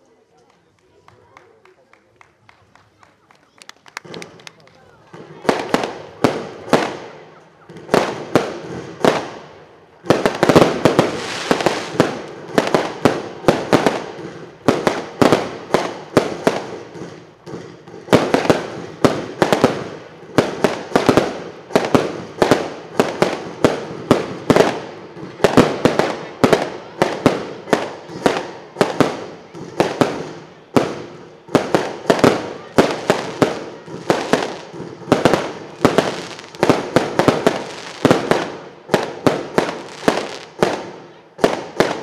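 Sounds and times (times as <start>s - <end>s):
fireworks banging: 0.4s - 42.0s.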